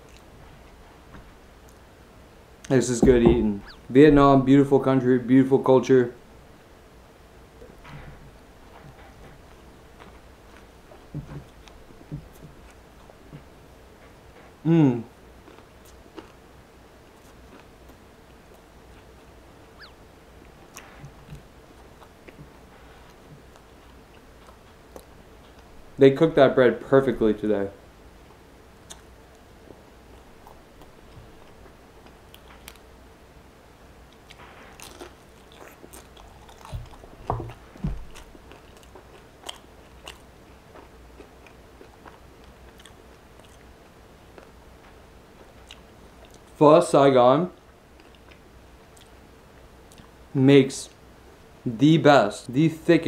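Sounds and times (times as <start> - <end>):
soft chewing: 0.0 - 1.9, 7.6 - 26.0, 28.2 - 33.0, 34.0 - 46.6, 47.6 - 50.3
low steady hum: 0.0 - 53.0
mouth clicks: 2.6 - 4.0
short falling bird chirp: 3.6 - 3.9
egg roll wrapper crunching: 34.8 - 37.0.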